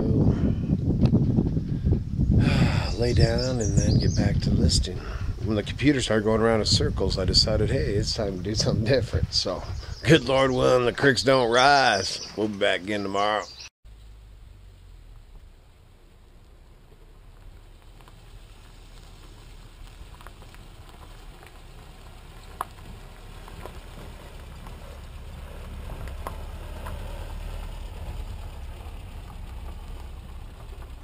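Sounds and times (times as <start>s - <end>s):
truck engine and tyre rumble: 0.0s - 31.0s
stones crunching: 16.3s - 31.0s.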